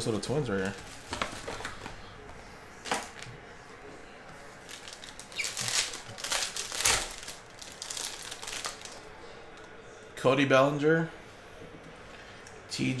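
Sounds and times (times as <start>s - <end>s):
foil wrapper crinkling: 4.6s - 9.1s.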